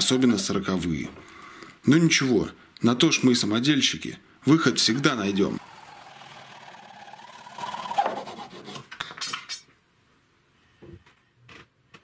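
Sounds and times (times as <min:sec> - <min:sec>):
hacksaw rasping through plastic: 0:05.0 - 0:08.9.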